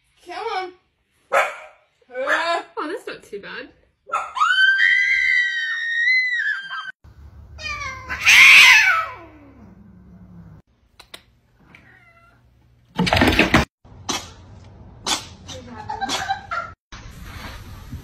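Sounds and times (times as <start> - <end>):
cat meowing: 7.6 - 9.6, 11.7 - 12.4
cat yowling: 7.6 - 9.8, 11.8 - 12.4.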